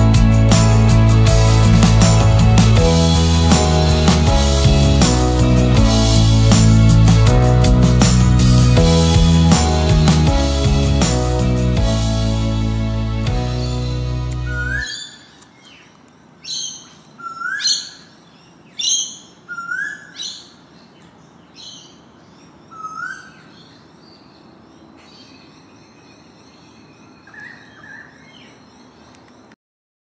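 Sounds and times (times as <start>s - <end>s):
sharp rising bird calls: 13.5s - 15.4s
faint background noise: 14.4s - 29.6s.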